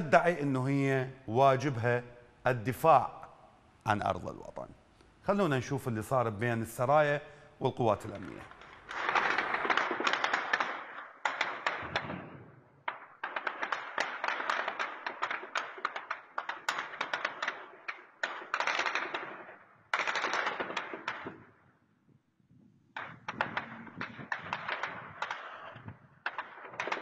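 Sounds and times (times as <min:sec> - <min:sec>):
automatic gunfire bursts: 0:08.7 - 0:21.3.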